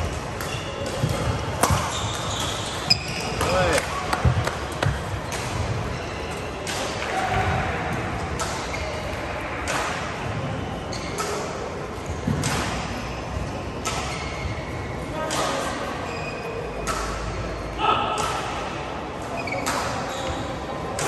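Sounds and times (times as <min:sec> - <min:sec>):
racquets striking shuttlecocks: 0:00.0 - 0:10.3, 0:11.0 - 0:13.1, 0:13.7 - 0:14.5, 0:16.8 - 0:17.5, 0:18.1 - 0:18.8.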